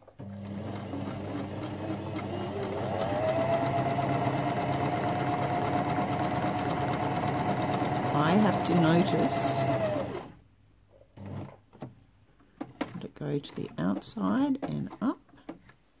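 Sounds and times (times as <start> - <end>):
sewing machine motor: 0.2 - 10.4.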